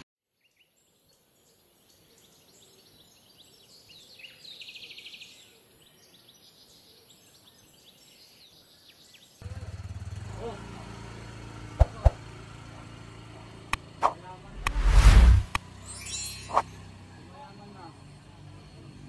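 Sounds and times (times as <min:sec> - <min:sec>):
birds chirping: 0:00.4 - 0:09.4, 0:15.8 - 0:16.8.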